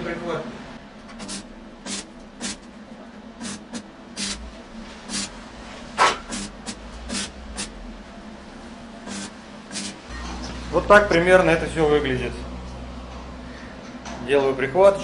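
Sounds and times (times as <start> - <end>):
arc welding crackling: 1.1 - 2.8, 3.4 - 11.3.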